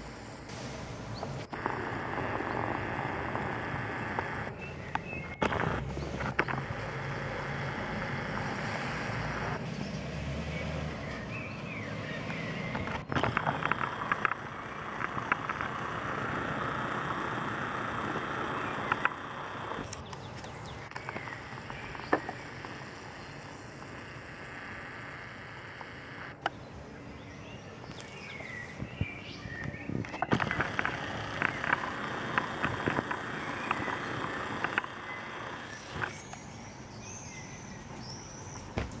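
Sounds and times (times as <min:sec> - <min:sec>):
distant helicopter drone: 0:00.0 - 0:28.5, 0:29.7 - 0:36.9
steady outdoor hiss: 0:00.0 - 0:39.0.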